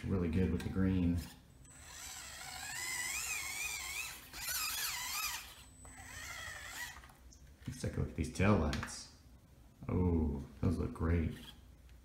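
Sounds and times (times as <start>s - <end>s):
toy car motor whining: 1.7s - 7.2s.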